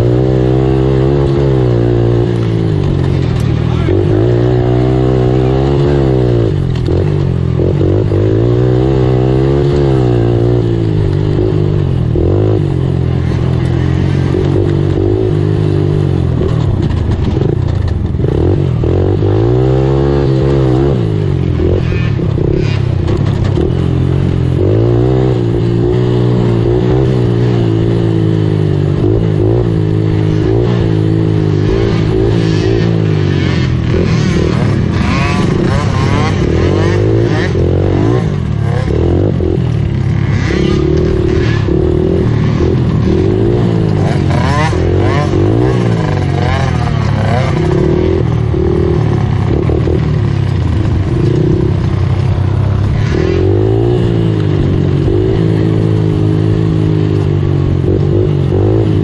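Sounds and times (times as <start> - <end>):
atv engine revving: 0.0 - 59.0.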